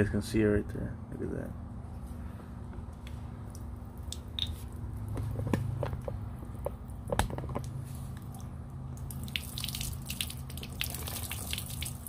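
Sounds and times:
water splashing onto concrete: 8.3 - 12.0.

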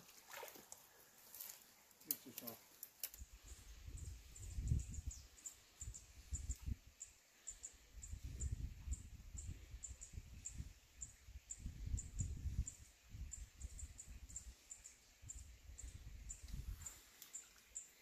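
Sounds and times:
small bird chirping: 2.0 - 18.0
wind rumbling on microphone: 3.2 - 7.0, 7.9 - 14.6, 15.2 - 17.0.

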